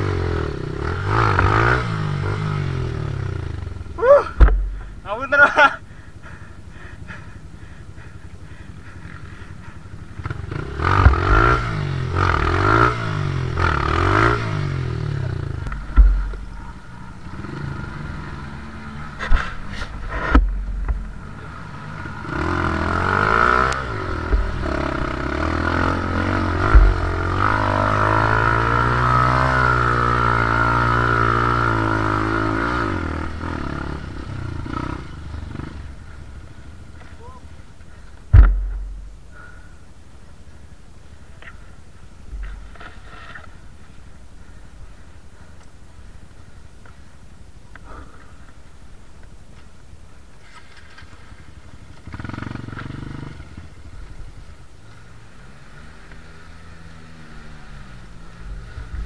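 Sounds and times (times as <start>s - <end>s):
motorcycle engine revving: 0.0s - 39.7s, 42.2s - 45.6s, 50.5s - 59.0s
sharp knocks and thumps: 4.4s - 5.0s, 15.7s - 16.7s, 19.2s - 21.2s, 24.1s - 25.8s, 26.5s - 27.6s, 38.3s - 39.3s.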